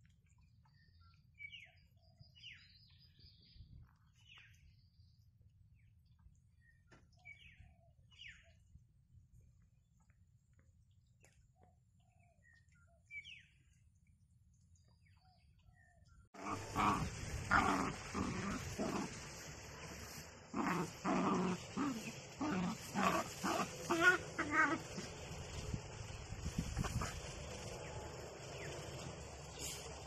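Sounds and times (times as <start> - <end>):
small dogs growling: 16.4 - 25.2, 26.6 - 27.4.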